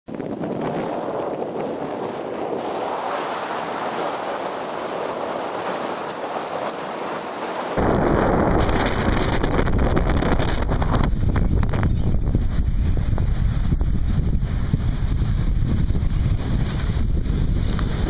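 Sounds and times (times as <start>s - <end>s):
wind buffeting microphone: 0.1s - 18.0s
surf washing: 0.6s - 7.8s.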